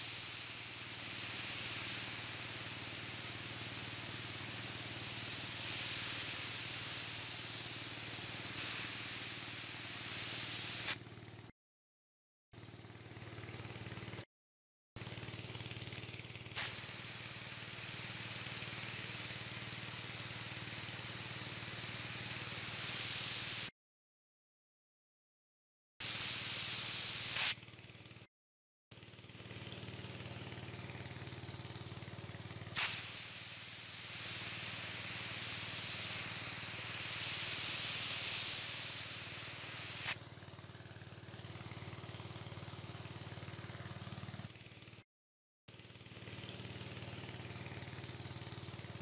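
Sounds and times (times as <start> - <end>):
spray jet hissing: 0.0 - 11.0, 16.6 - 23.7, 26.0 - 27.6, 32.8 - 40.2
sprayer pump engine humming: 0.0 - 11.0, 15.0 - 23.6, 29.1 - 44.8, 45.8 - 49.0.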